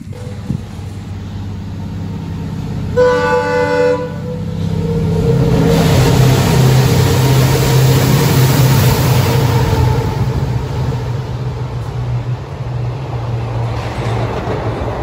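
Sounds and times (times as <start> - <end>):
diesel locomotive engine rumble: 0.0 - 15.0
train horn blast: 2.9 - 6.2.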